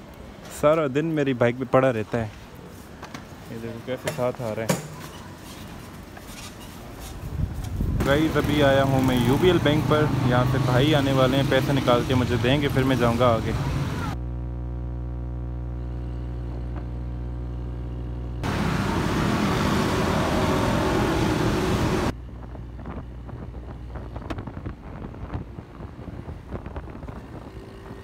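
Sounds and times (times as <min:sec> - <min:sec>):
street traffic noise: 0:00.0 - 0:14.2, 0:18.4 - 0:28.0
wind rushing on microphone: 0:07.1 - 0:08.4, 0:22.1 - 0:28.0.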